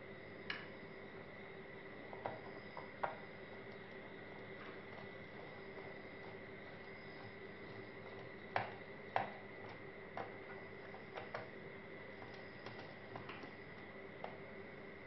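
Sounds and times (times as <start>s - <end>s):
steady faint hum: 0.0s - 15.0s.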